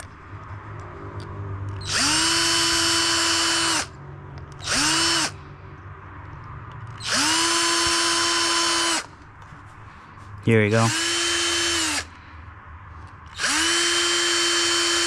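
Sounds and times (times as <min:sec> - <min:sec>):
electric drill whining: 0:01.8 - 0:03.9, 0:04.6 - 0:05.4, 0:06.9 - 0:09.1, 0:10.8 - 0:12.2, 0:13.3 - 0:15.0.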